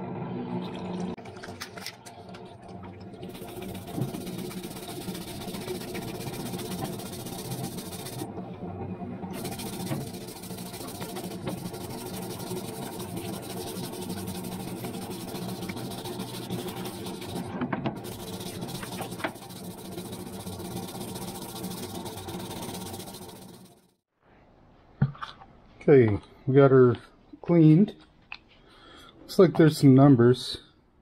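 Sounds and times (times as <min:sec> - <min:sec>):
pump running: 0:00.7 - 0:23.9
liquid pouring into tub: 0:01.0 - 0:08.2, 0:09.3 - 0:23.6
brush scrubbing metal wrench: 0:03.2 - 0:08.3, 0:09.4 - 0:23.8.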